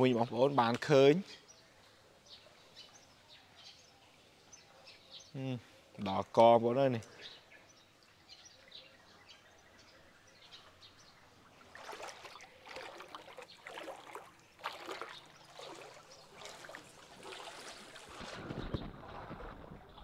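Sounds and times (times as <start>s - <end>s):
floodwater splashing: 11.4s - 20.0s.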